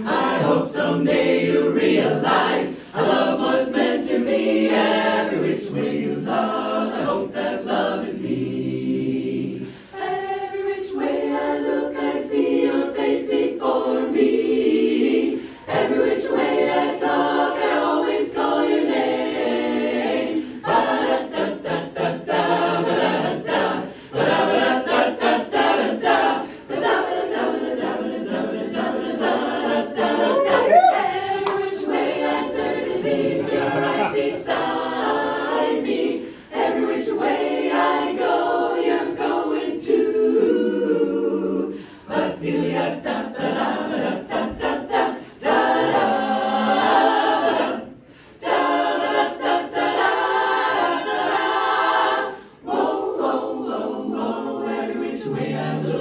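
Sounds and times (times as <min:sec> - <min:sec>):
mixed chorus singing a cappella: 0:00.0 - 0:56.0
singers breathing: 0:09.6 - 0:10.0, 0:15.4 - 0:15.7, 0:23.8 - 0:24.2, 0:26.4 - 0:26.7, 0:36.2 - 0:36.6, 0:41.7 - 0:42.1, 0:48.0 - 0:48.4, 0:52.3 - 0:52.6.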